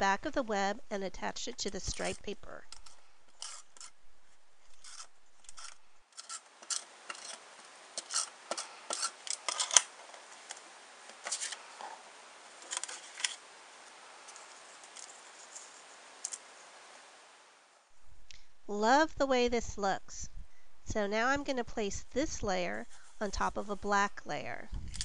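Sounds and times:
tape runner strokes on paper: 0:01.7 - 0:11.7.

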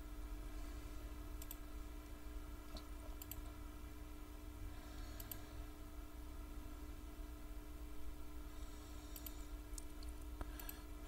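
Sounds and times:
low electrical hum: 0:00.0 - 0:11.0
computer mouse clicking: 0:01.4 - 0:01.6, 0:02.7 - 0:03.5, 0:05.1 - 0:05.5, 0:09.1 - 0:10.9.

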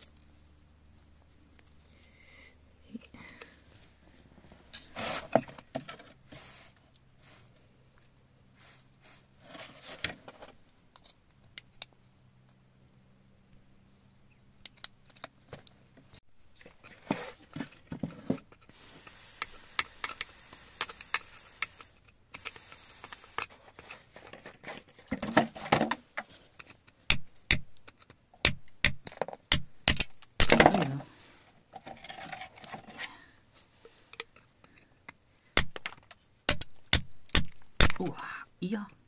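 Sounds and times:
hissing scrape: 0:06.2 - 0:07.6, 0:18.6 - 0:24.2.

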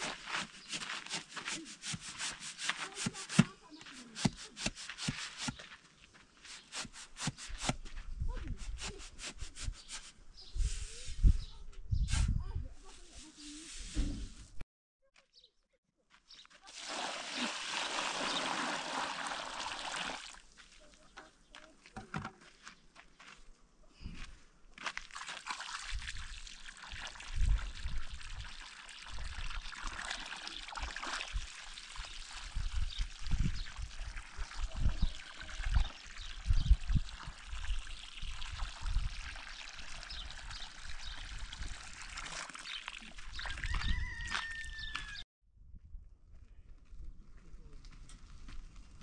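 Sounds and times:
water pouring and splashing: 0:16.6 - 0:20.8, 0:24.8 - 0:44.0.

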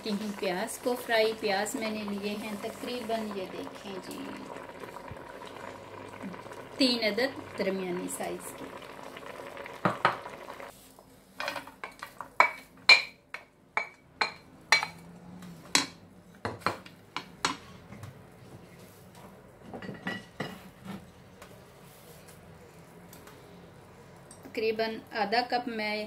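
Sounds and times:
stew bubbling in a pot: 0:00.0 - 0:10.8.

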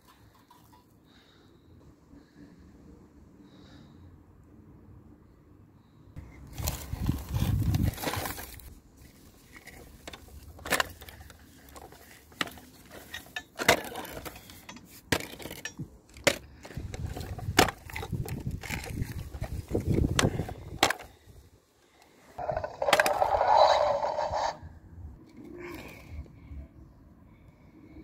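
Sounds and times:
toy rustling through grass: 0:06.2 - 0:15.1
toy scraping over dirt: 0:06.2 - 0:21.2, 0:22.4 - 0:24.8.

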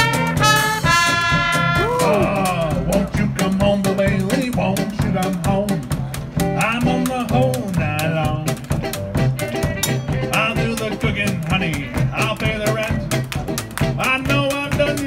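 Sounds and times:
clicking percussion beat: 0:00.0 - 0:15.0
swing jazz band playing: 0:00.0 - 0:15.0
upright bass line: 0:00.0 - 0:15.0.

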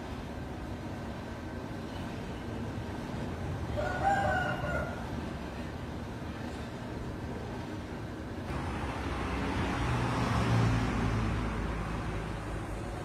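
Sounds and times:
motor vehicle passing: 0:08.5 - 0:13.0.

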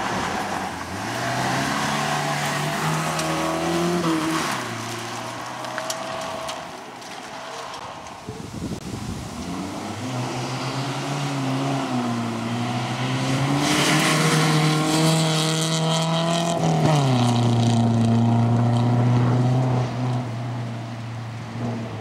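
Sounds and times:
rally car engine revving: 0:00.0 - 0:06.7, 0:09.4 - 0:20.8
gravel hissing from tyres: 0:00.0 - 0:14.9.

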